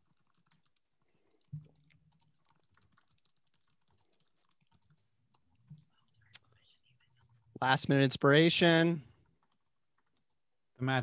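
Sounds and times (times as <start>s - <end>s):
typing on computer keyboard: 0.0s - 6.4s, 9.1s - 10.4s.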